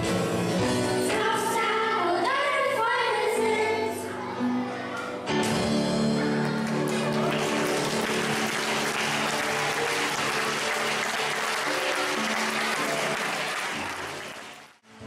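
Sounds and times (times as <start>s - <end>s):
background music: 0.0s - 15.0s
audience applause: 6.2s - 14.9s.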